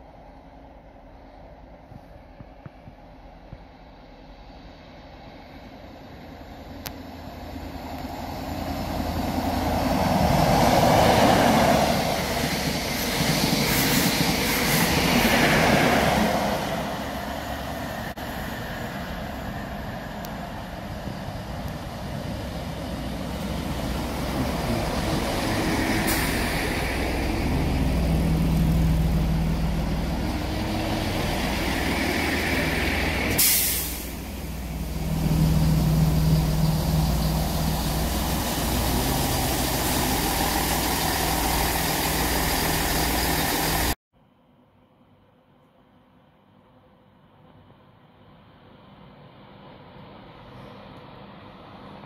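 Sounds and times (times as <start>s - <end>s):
diesel train engines humming: 0.0s - 44.0s
high-speed train rushing past: 0.0s - 44.0s
brake air hiss: 22.4s - 44.0s.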